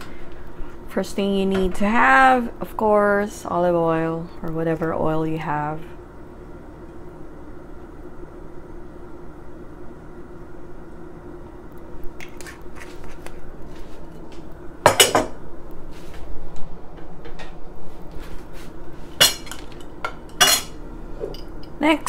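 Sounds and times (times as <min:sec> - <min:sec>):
steady low hum: 0:00.0 - 0:22.0
cookware and utensils clattering: 0:14.9 - 0:15.4, 0:19.2 - 0:21.7.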